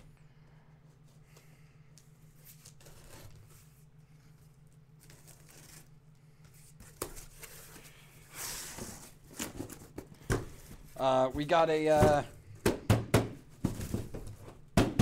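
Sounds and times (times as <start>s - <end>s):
faint steady hum: 0.0s - 15.0s
knocks against cardboard: 11.9s - 15.0s.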